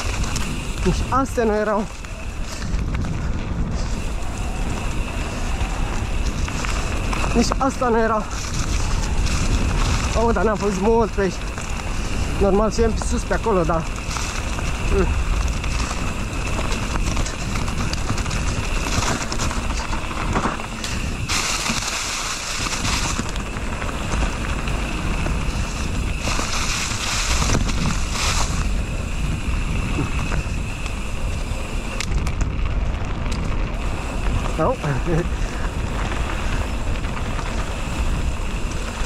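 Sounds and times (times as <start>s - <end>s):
bike rolling on trail: 0.0s - 39.0s
wind rumbling on microphone: 0.0s - 39.0s
loud hiss: 20.6s - 23.3s, 24.8s - 32.0s.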